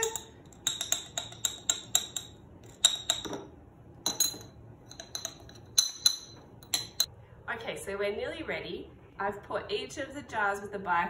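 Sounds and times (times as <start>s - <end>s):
metal spoon clinking against glass jars: 0.0s - 7.1s.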